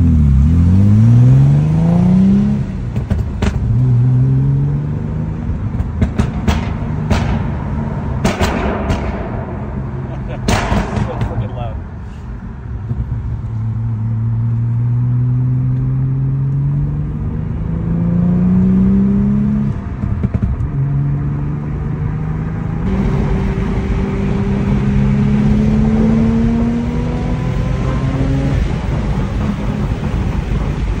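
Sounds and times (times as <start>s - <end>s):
car engine accelerating: 0.0s - 31.0s
exhaust crackle: 22.6s - 31.0s.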